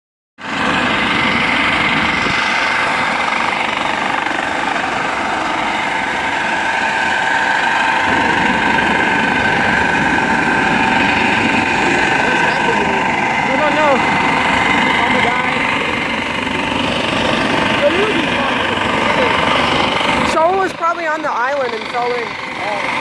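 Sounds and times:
helicopter rotor chop: 0.4 - 23.0
high turbine whine: 0.4 - 23.0.

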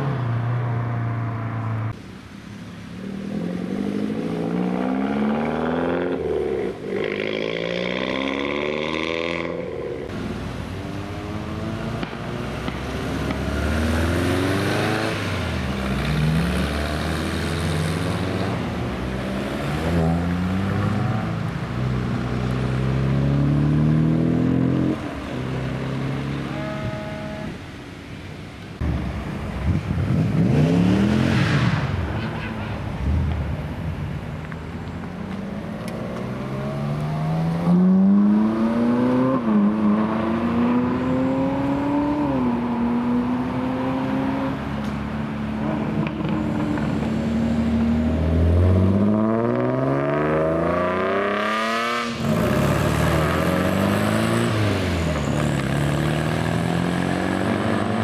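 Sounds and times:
cars accelerating: 2.8 - 27.5, 28.8 - 58.0
car passing close: 28.8 - 58.0.

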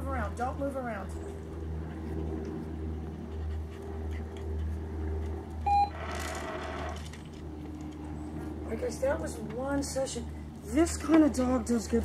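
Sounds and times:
low hum: 0.0 - 12.0
short electronic beep: 5.7 - 6.0
dispenser whirring and rattling: 5.7 - 8.0.

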